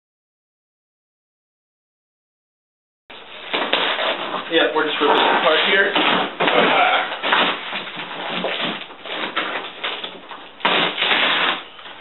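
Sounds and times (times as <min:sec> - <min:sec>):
cardboard box tearing: 0:03.2 - 0:12.0.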